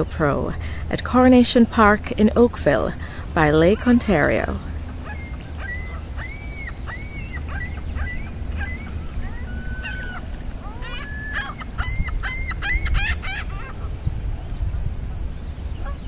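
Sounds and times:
gulls calling: 0.0s - 16.0s
low steady rumble: 0.0s - 16.0s.

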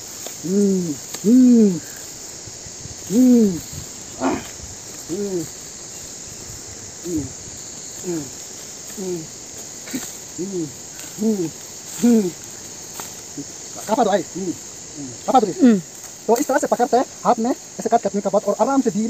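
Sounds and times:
short hooting calls: 0.0s - 2.2s, 3.0s - 6.1s, 7.0s - 16.0s
high-pitched insect drone: 0.0s - 19.0s.

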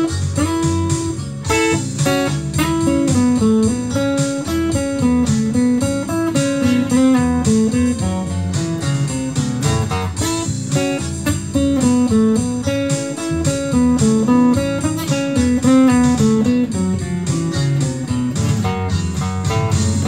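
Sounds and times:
acoustic guitar plucking: 0.0s - 20.0s.

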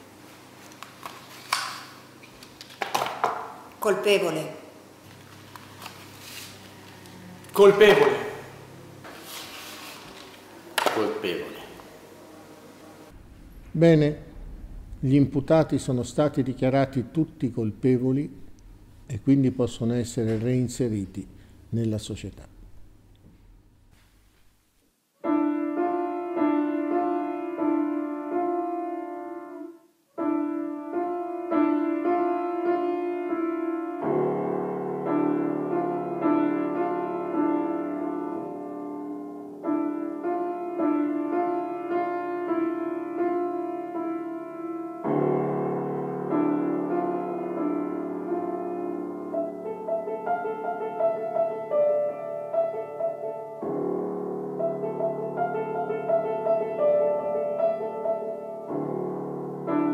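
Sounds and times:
piano music: 13.1s - 21.2s, 25.2s - 59.9s.

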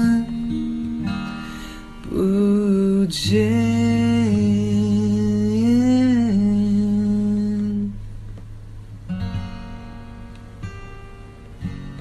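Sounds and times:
man singing: 0.0s - 0.5s, 2.1s - 8.0s
acoustic guitar: 0.0s - 12.0s.

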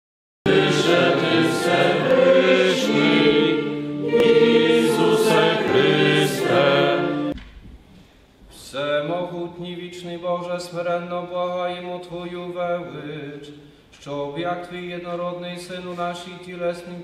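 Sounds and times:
choir singing a hymn: 0.5s - 7.4s.

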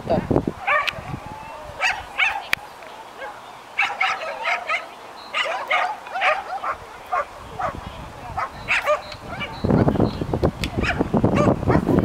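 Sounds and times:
dog barking in high yips: 0.6s - 1.1s, 1.8s - 2.5s, 3.2s - 7.8s, 8.4s - 9.9s, 10.7s - 11.9s.

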